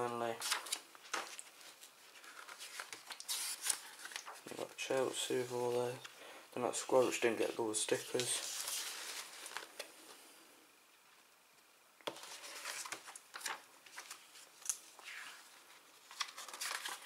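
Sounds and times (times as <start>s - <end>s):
paper pages rustling and flapping: 0.0s - 6.1s, 6.9s - 9.9s, 12.0s - 17.0s.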